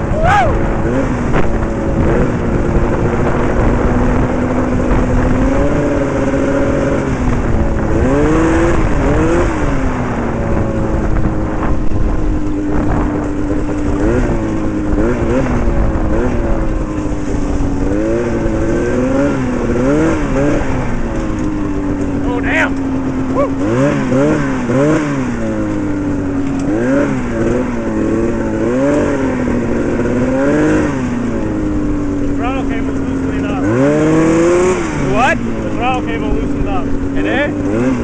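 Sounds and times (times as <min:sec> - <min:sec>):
steady rushing noise: 0:00.0 - 0:38.0
two-stroke engine revving: 0:00.0 - 0:38.0.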